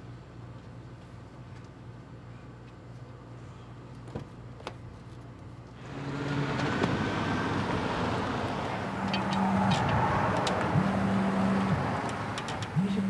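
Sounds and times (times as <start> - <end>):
car engine and tyre noise: 4.6 - 13.0.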